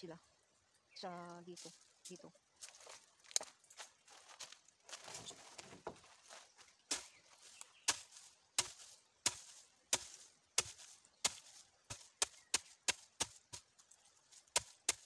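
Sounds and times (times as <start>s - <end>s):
wooden pestle pounding in mortar: 7.9s - 13.6s.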